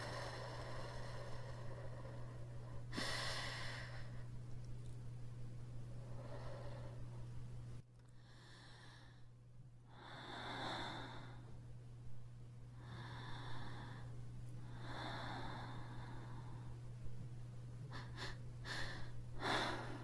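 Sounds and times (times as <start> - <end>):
person breathing slowly: 0.0 - 4.3, 6.0 - 7.3, 8.2 - 9.3, 9.9 - 11.6, 12.7 - 16.9, 17.9 - 20.0.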